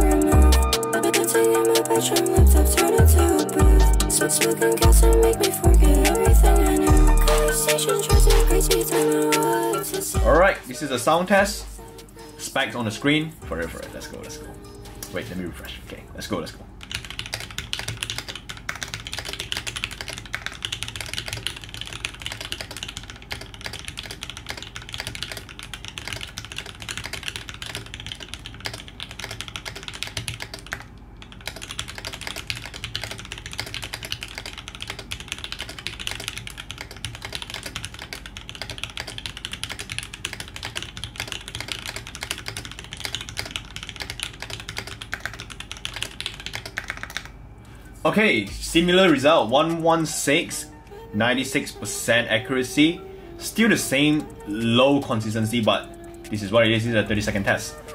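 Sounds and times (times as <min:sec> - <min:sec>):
fast mechanical keyboard typing: 0:00.0 - 0:10.5, 0:16.3 - 0:47.4, 0:53.6 - 0:57.9.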